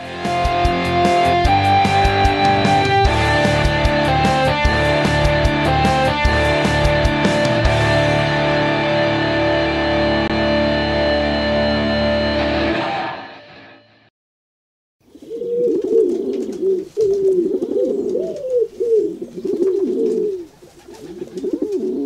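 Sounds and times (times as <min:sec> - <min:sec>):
guitar music: 0:00.0 - 0:14.1
pigeons cooing: 0:15.1 - 0:22.0.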